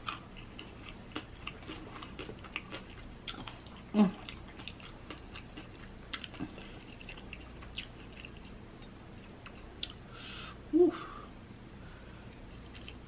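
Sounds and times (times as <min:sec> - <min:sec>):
person chewing crunchy food: 0:00.0 - 0:10.0.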